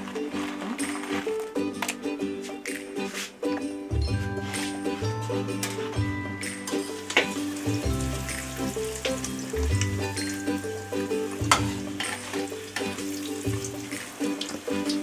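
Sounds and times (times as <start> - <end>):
background music: 0.0 - 15.0
deep-frying oil sizzling: 6.4 - 15.0.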